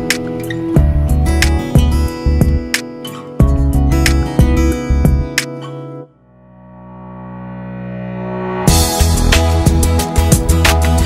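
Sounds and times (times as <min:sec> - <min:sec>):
held music chord: 0:03.5 - 0:11.0.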